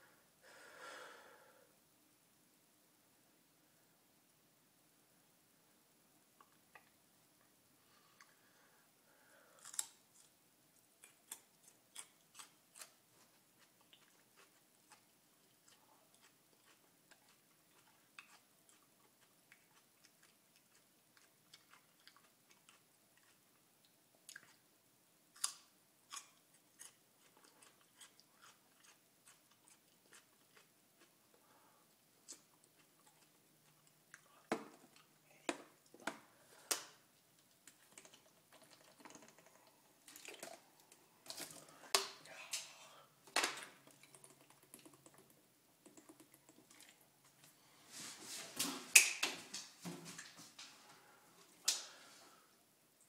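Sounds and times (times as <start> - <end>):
person chewing garlic: 9.6 - 24.7, 25.3 - 35.2, 37.4 - 41.7.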